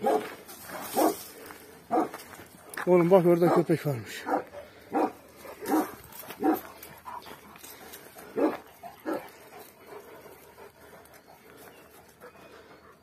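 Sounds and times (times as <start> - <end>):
dog barking: 0.0 - 0.3, 1.0 - 1.2, 1.9 - 2.2, 3.4 - 6.6, 8.4 - 9.2.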